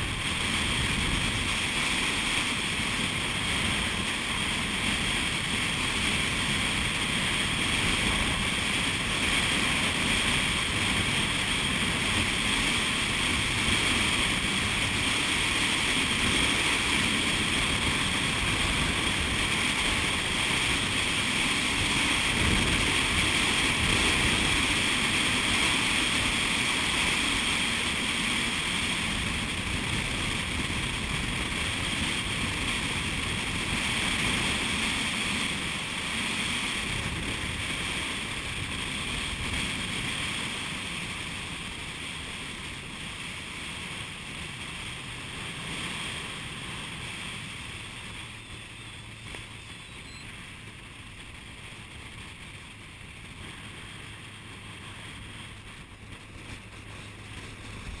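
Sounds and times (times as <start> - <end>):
wind buffeting microphone: 0.0 - 49.8
low engine hum: 0.0 - 58.0.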